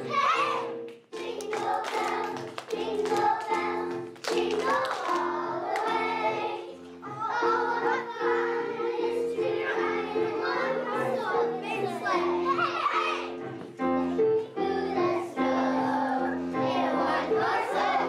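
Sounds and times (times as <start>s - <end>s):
children singing: 0.0s - 18.0s
hand claps: 0.9s - 6.0s.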